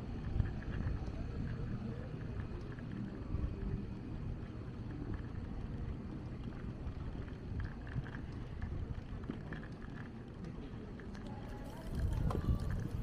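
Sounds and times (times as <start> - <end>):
wind rumble on microphone: 0.0 - 13.0
bicycle rolling over stone paving: 11.5 - 13.0.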